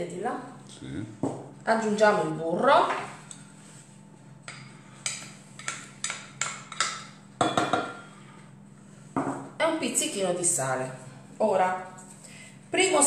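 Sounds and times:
utensil knocking against a pot: 4.5 - 8.0.

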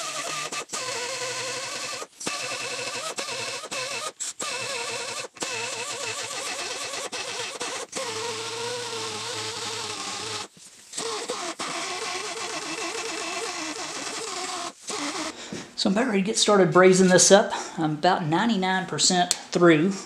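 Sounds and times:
die grinder grinding cast iron: 0.0 - 15.4.

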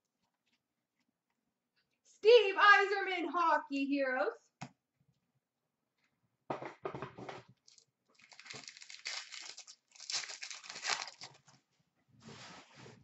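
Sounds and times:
wrapper tearing and crinkling: 7.6 - 11.4.

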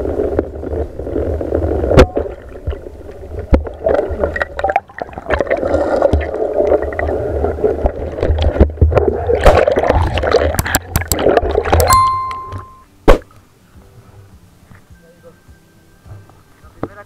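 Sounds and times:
short electronic chime: 11.9 - 12.9.

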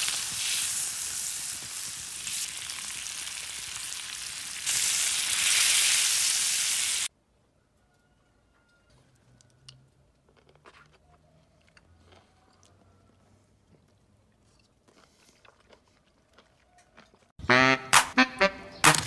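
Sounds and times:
food sizzling on hot stone: 0.0 - 7.1.

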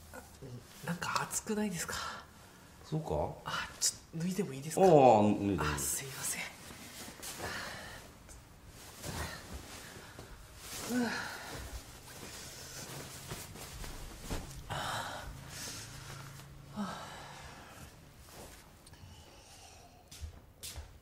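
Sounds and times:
person gasping: 9.1 - 13.0, 14.6 - 18.0
person exhaling: 14.6 - 18.0, 18.9 - 20.1.

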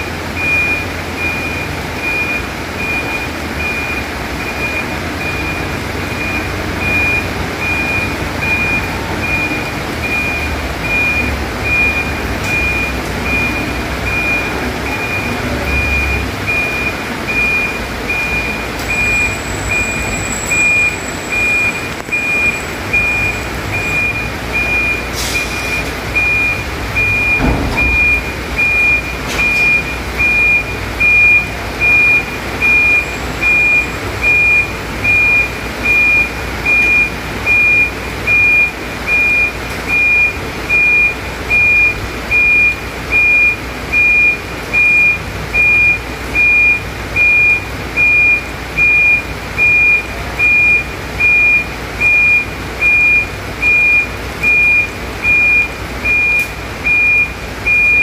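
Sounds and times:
truck engine running: 0.0 - 58.0
reverse alarm beeping: 0.4 - 58.0
thump: 27.3 - 28.3.

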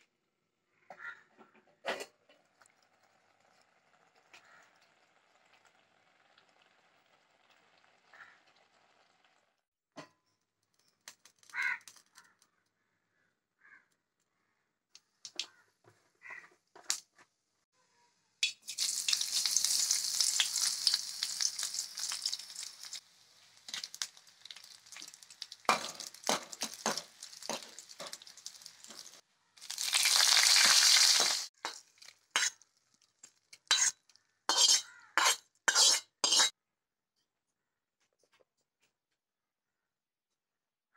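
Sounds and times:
seeds sizzling in hot oil: 18.4 - 36.6
steel spoon scraping and clinking: 33.6 - 36.5.

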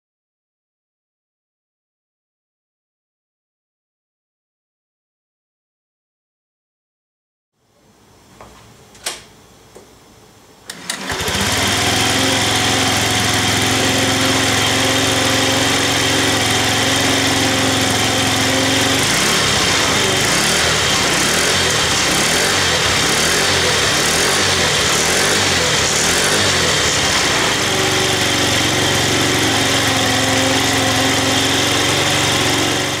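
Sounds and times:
click: 10.7 - 11.0
scooter engine running: 10.7 - 33.0.

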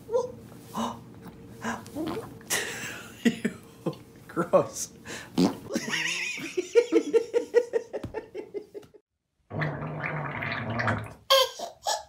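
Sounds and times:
baby sputtering fart: 2.0 - 2.4, 5.4 - 5.7.

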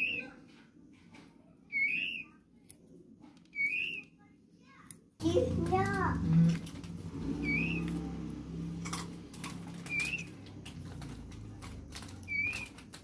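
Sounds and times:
bird chick cheeping: 7.4 - 7.9, 9.8 - 10.4.

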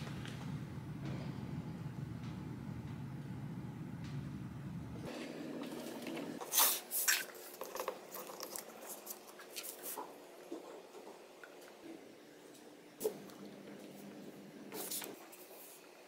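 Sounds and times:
low steady hum: 0.0 - 6.4.

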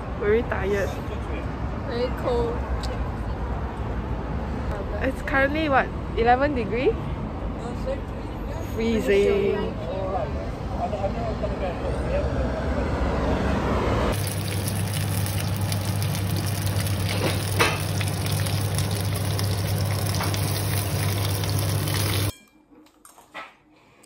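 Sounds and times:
dumplings sizzling in a frying pan: 14.2 - 22.3.

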